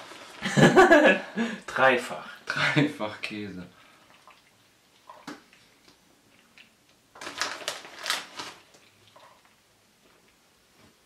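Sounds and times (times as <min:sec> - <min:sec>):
plastic bag crinkling: 0:07.1 - 0:09.5.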